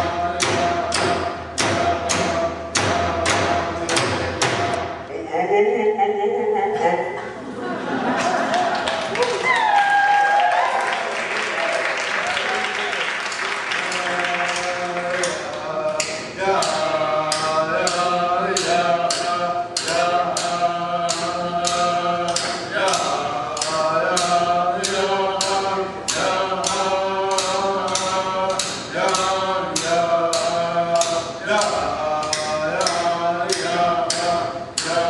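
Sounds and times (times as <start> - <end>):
frame drums beating: 0.0 - 5.0, 12.1 - 35.0
applause: 8.5 - 14.6
voices chanting: 10.6 - 35.0.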